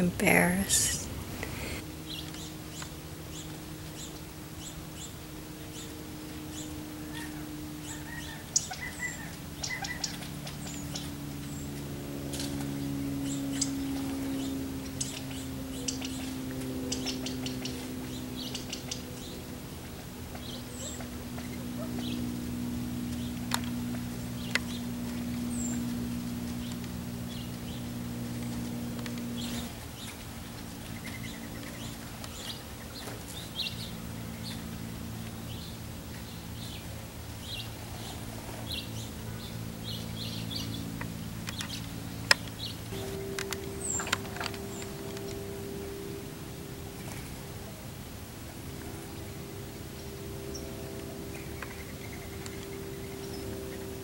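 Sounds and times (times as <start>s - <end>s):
low hum of held tones: 0.0s - 54.0s
quail chirping: 7.1s - 11.1s.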